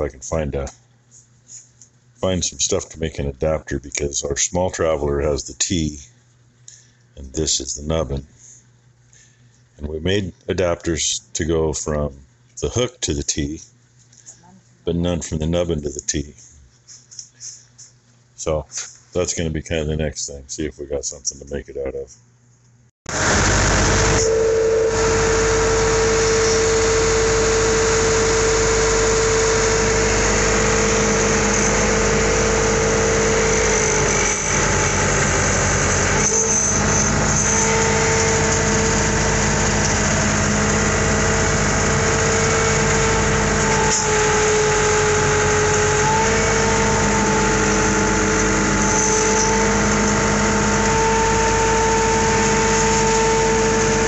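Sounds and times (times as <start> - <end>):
high whine: 23.1 - 54.0
tractor engine running: 23.1 - 54.0.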